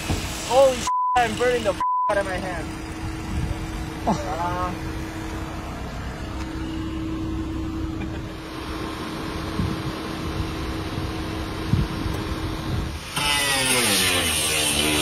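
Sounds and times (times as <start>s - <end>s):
power tool motor hum: 12.9s - 15.0s.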